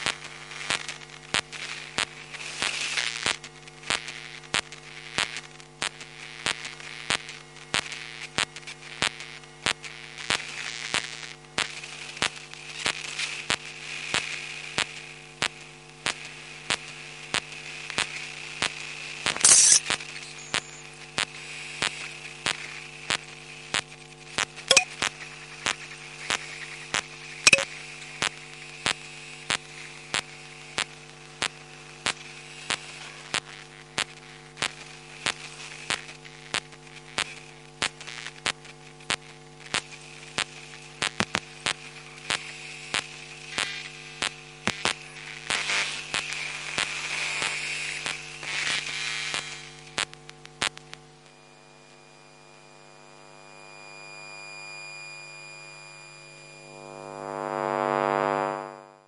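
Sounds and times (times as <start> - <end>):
electronic buzzing hum: 0.0 - 59.0
electronic tone: 19.4 - 20.9, 24.7 - 25.1, 27.5 - 27.7, 51.3 - 59.0.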